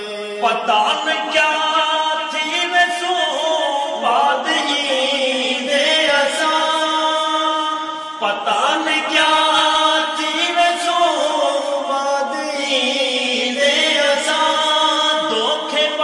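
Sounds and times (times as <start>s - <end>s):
men singing in chanting style: 0.0s - 16.0s.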